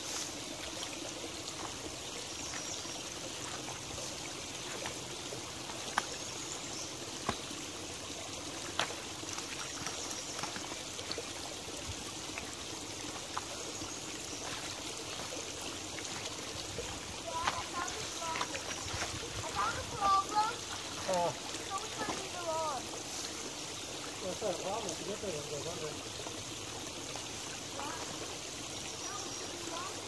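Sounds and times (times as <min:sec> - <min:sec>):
creek trickling over stones: 0:00.0 - 0:30.0.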